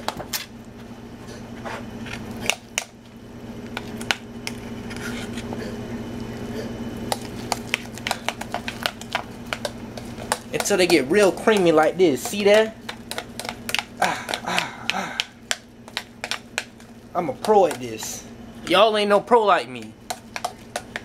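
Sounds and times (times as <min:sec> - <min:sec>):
low hum: 0:00.0 - 0:18.9.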